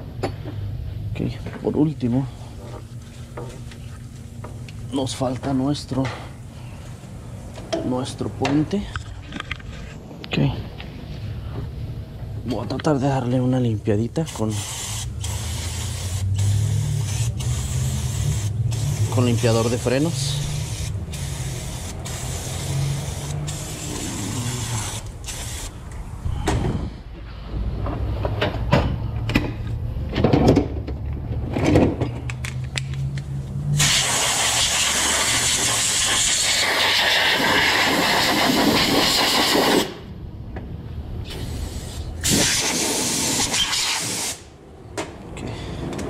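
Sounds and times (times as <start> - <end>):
air blow gun hissing: 14.3 - 25.8, 33.8 - 40.0, 41.3 - 44.5
aerosol spraying: 14.5 - 25.7, 33.8 - 39.9, 41.3 - 44.4.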